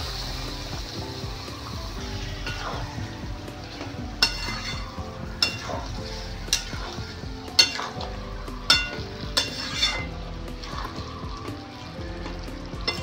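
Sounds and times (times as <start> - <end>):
gravy sizzling: 0.0 - 13.0
spatula clanging metal pan: 2.4 - 3.0, 3.7 - 11.0, 12.8 - 13.0.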